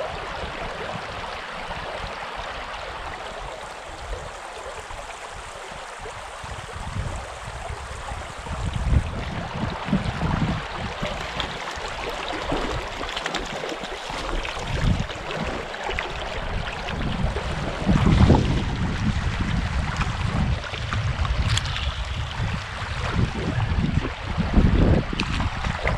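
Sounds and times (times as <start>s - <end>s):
stream running over gravel: 0.0s - 25.9s
wind buffeting microphone: 3.0s - 13.0s, 14.2s - 25.9s
fish splashing: 11.2s - 16.5s.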